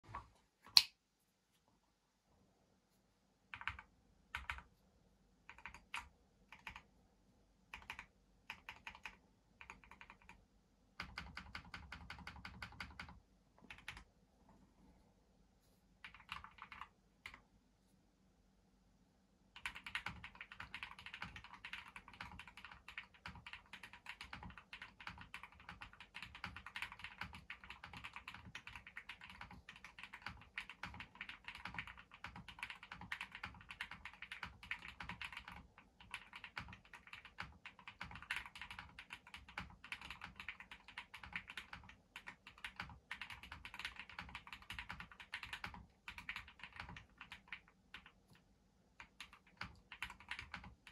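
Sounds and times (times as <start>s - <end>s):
mechanical keyboard typing: 3.5s - 4.7s, 5.5s - 6.9s, 7.7s - 10.4s, 11.0s - 14.1s, 16.0s - 17.4s, 19.6s - 48.4s, 49.0s - 50.9s.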